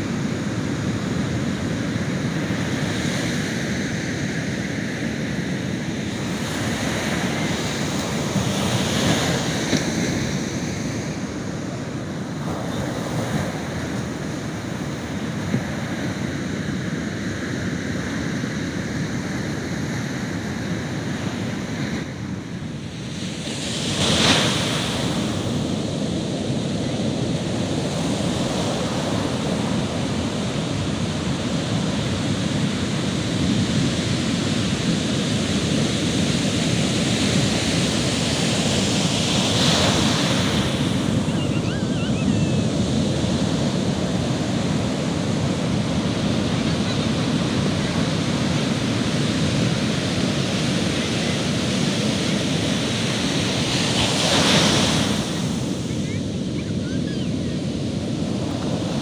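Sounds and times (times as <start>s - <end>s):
ocean surf breaking: 0.0s - 59.0s.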